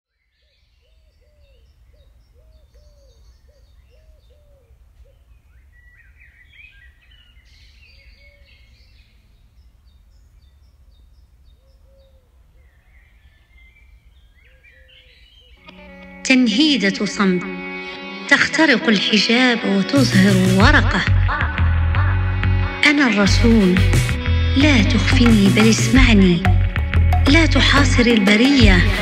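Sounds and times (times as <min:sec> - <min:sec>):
short low repeated bird calls: 0:00.2 - 0:15.7
birds chirping and calling: 0:00.3 - 0:15.8.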